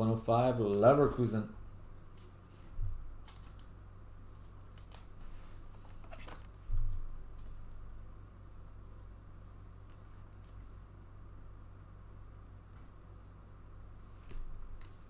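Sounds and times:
low room hum: 0.0 - 15.0
cards rustling and clicking: 3.2 - 7.8.

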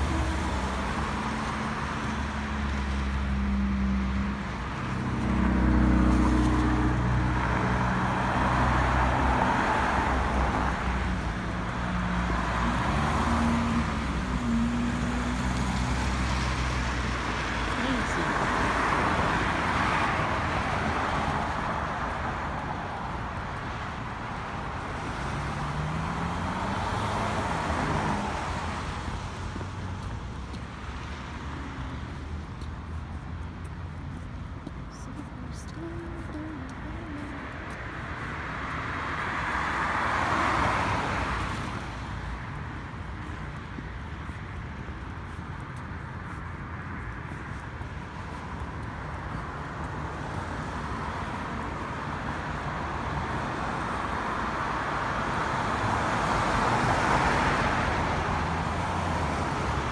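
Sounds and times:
cars passing: 0.0 - 59.9.

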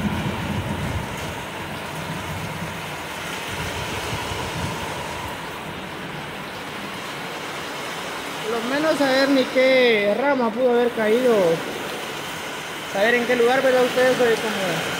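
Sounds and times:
wind buffeting microphone: 0.0 - 8.4
heavy rain pouring: 0.0 - 14.9.

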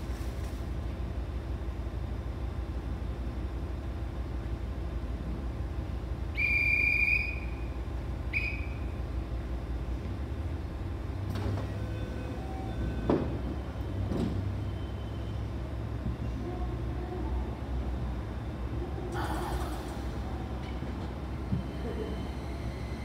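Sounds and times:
diesel railcar idling: 0.0 - 23.0
shrill whistle blasts: 6.4 - 7.7, 8.3 - 8.9.

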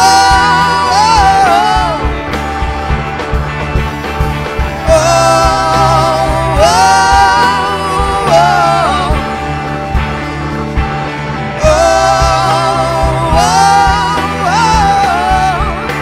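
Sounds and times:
person singing long notes: 0.0 - 2.2, 4.8 - 9.5, 11.6 - 16.0
live rock band: 0.0 - 16.0.

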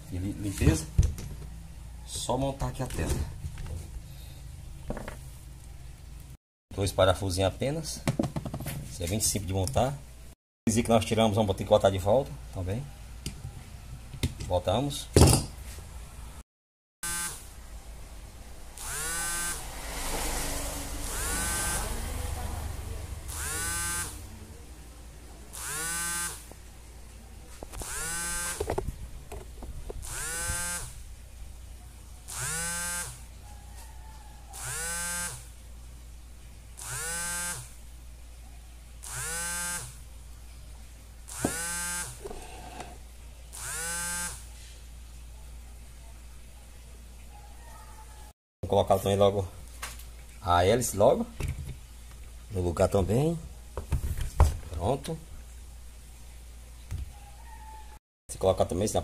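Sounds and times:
small electric motor whirring: 17.0 - 17.5, 18.8 - 19.8, 21.0 - 22.0, 23.3 - 24.2, 25.5 - 26.4, 27.7 - 28.7, 30.0 - 31.0, 32.3 - 33.2, 34.6 - 35.5, 36.8 - 37.8, 39.0 - 40.0, 41.3 - 44.5.

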